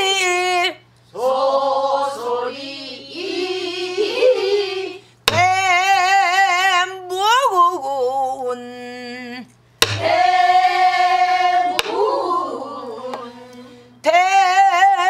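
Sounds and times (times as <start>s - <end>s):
woman singing with vibrato: 0.0s - 1.4s, 3.8s - 15.0s
stick striking barrel drum: 5.3s - 5.8s, 9.8s - 10.2s, 11.7s - 12.1s.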